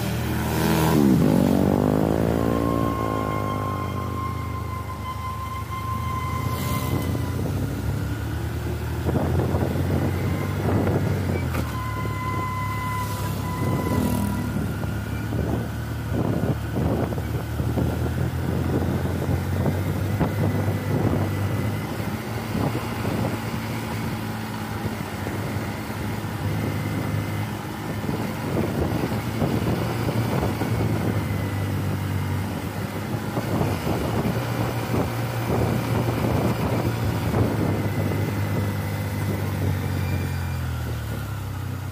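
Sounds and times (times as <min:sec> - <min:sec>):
road and wind noise: 0:00.0 - 0:41.9
vehicle engine running: 0:00.0 - 0:41.9
steady high tone: 0:00.5 - 0:08.5.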